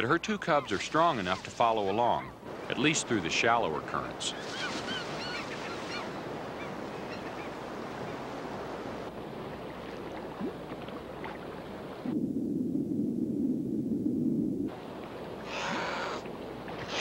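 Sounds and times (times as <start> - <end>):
muffled underwater rush of water: 4.9 - 17.0.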